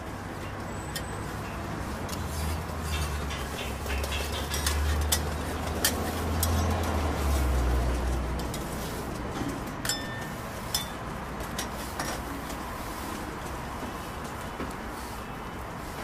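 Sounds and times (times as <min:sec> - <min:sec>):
metal scrapers on griddle: 0:01.8 - 0:13.3.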